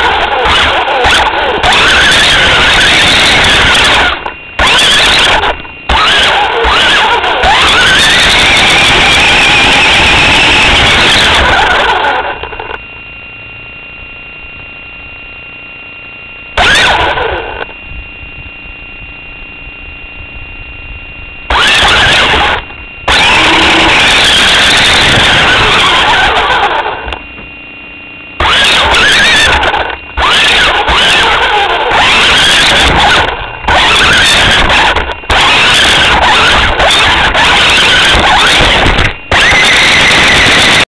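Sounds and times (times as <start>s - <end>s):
rc car motor whining: 0.0s - 12.8s, 16.6s - 17.7s, 21.5s - 27.2s, 28.4s - 40.8s.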